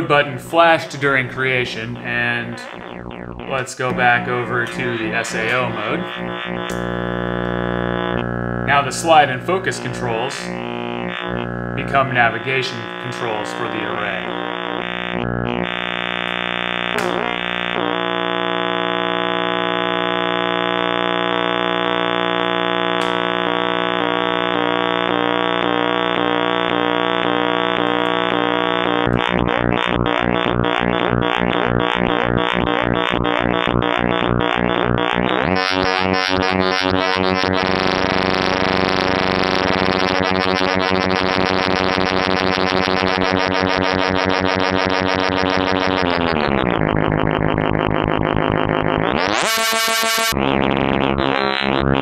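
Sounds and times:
synthesizer harmonic drone: 2.5s - 6.7s.

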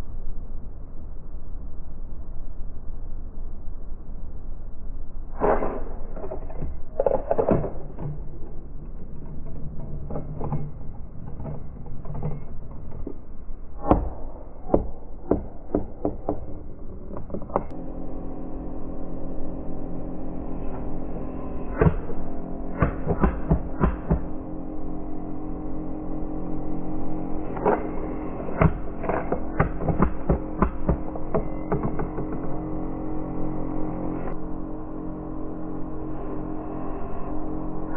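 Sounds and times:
background music sustained notes: 17.7s - 37.9s.

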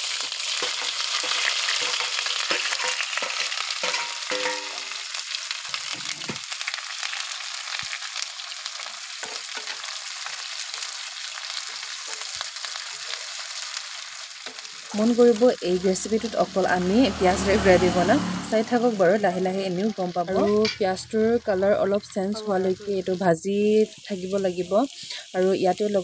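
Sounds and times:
onions sizzling in hot oil: 0.0s - 26.0s
spoon scraping and knocking pan: 0.6s - 5.0s.

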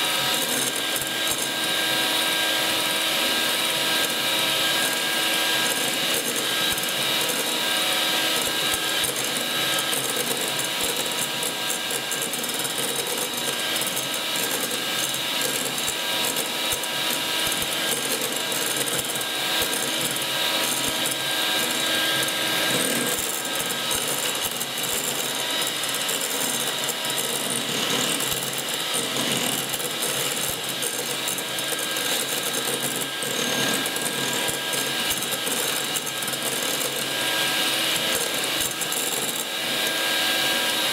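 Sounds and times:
electric hand mixer whipping cream: 0.0s - 40.9s.

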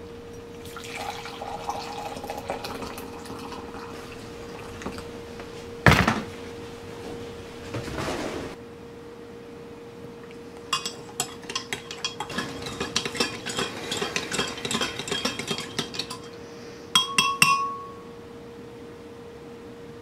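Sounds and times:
spoon tapping mug rim: 10.7s - 16.4s, 17.0s - 18.1s
teaspoon clinking in mug: 10.7s - 16.4s, 17.0s - 18.0s.

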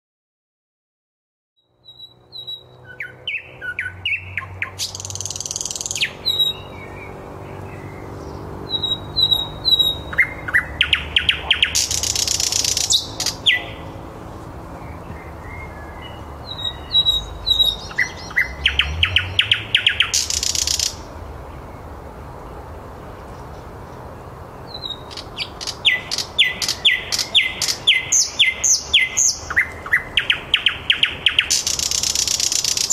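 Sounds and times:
bird singing: 1.6s - 22.0s, 23.3s - 32.9s.

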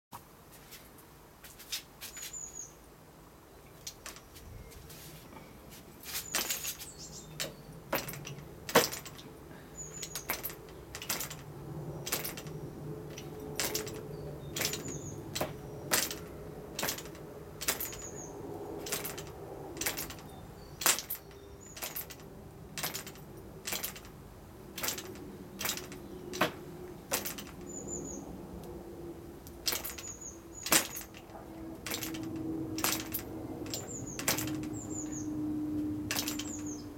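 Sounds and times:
birds chirping: 2.0s - 36.9s
sharp clicks of propeller: 6.3s - 9.3s, 9.9s - 28.8s, 29.4s - 35.3s, 36.0s - 36.9s.

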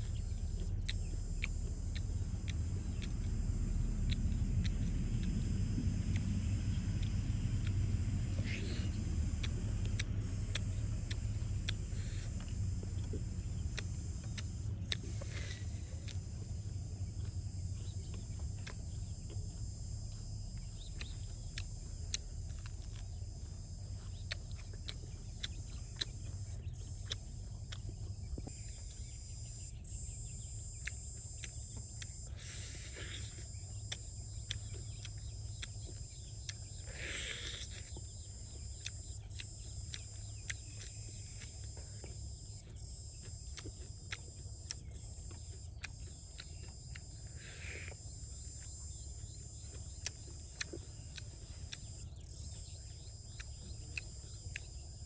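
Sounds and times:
low rumble: 0.0s - 32.4s
high-pitched insect chorus: 0.0s - 55.0s
bird calls: 6.1s - 19.6s, 20.5s - 55.0s
sharp clicks: 7.0s - 16.2s, 24.2s - 54.9s.

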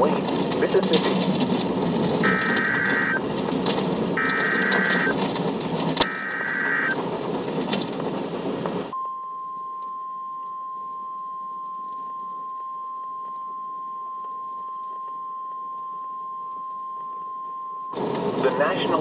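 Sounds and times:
radio hiss and crackle: 0.0s - 8.9s, 18.0s - 19.0s
short buzzing data bursts: 2.2s - 3.2s, 4.2s - 5.2s, 6.0s - 7.0s
steady warning alarm tone: 2.2s - 3.2s, 4.2s - 5.2s, 6.0s - 7.0s.

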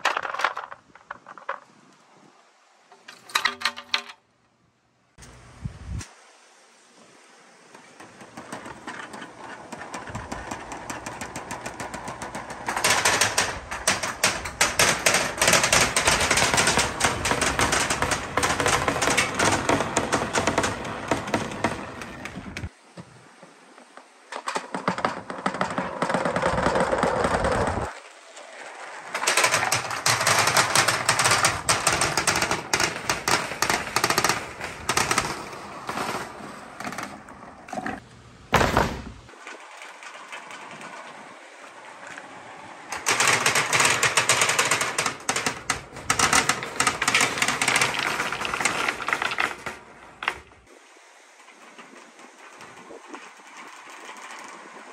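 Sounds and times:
balls rattling down plastic tubes: 0.0s - 1.7s, 8.0s - 22.7s, 29.1s - 38.0s, 42.9s - 50.7s.

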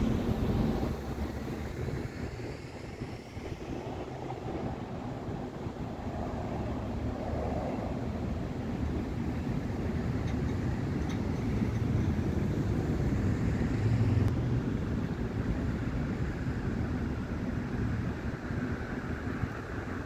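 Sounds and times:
cars driving past: 0.0s - 14.9s.

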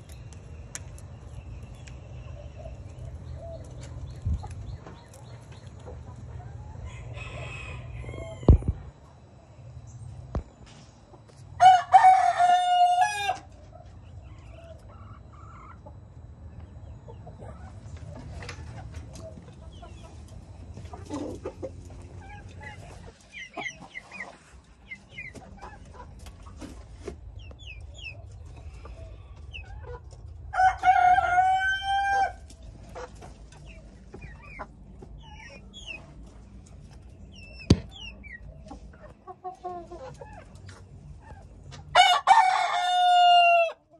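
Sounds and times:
chickens clucking and chirping: 0.0s - 43.9s
rooster crowing: 6.8s - 8.7s, 11.6s - 13.5s, 30.5s - 32.4s, 41.9s - 43.8s
sharp knock: 37.7s - 38.0s.

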